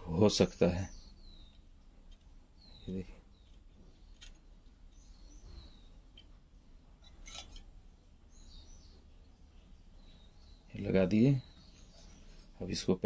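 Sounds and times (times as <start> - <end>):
faint bird chirps: 0.0 - 13.0
faint handling sounds: 9.6 - 12.9.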